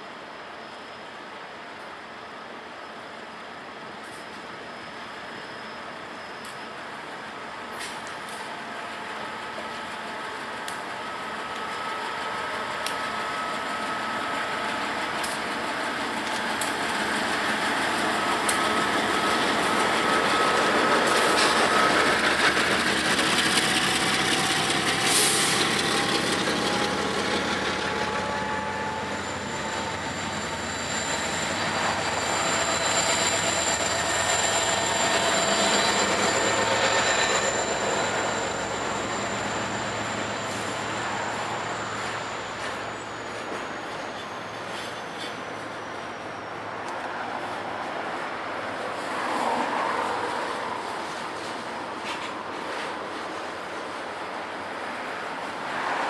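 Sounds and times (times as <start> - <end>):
diesel locomotives passing: 0.1 - 56.0
train cars rumbling and clattering: 3.8 - 56.0
high wheel squeal: 4.1 - 7.2, 11.1 - 48.0.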